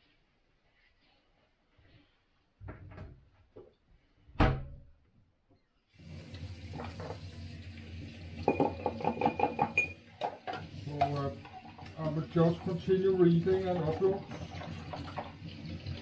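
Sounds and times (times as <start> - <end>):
tap water running into sink: 6.0 - 16.0.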